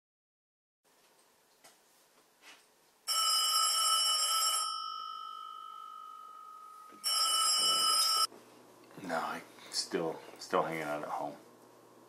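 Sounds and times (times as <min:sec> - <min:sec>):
telephone bell ringing: 0:03.1 - 0:08.3.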